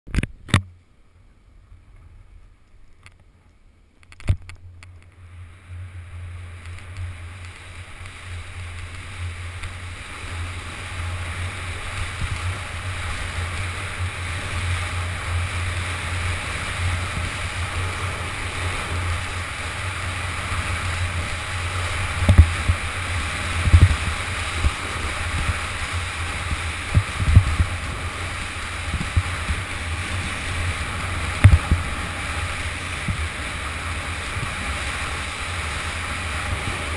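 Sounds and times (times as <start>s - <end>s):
clicks: 2.6s - 5.2s
wind buffeting microphone: 4.2s - 36.9s
skis scraping over snow: 5.0s - 36.9s.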